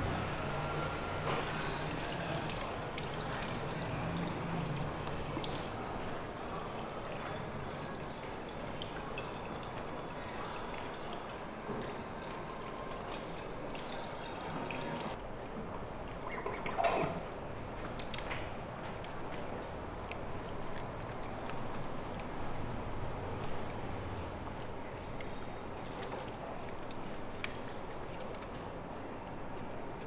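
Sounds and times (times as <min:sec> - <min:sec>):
water splashing into sink: 0:01.0 - 0:15.2.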